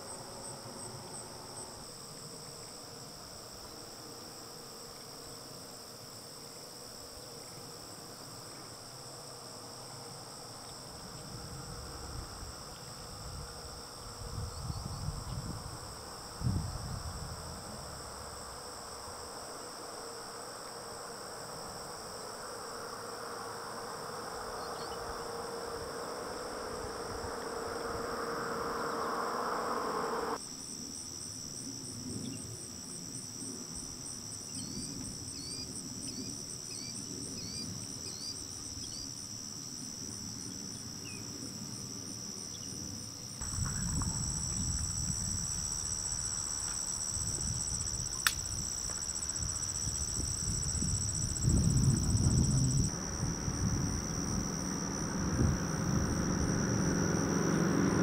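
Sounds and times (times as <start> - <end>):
crickets and insects chirping: 0.0 - 58.0
low hum: 22.2 - 30.4.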